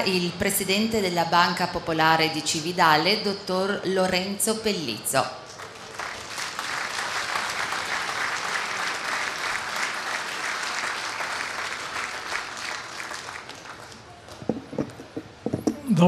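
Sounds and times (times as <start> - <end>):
crowd applauding: 5.5 - 14.5.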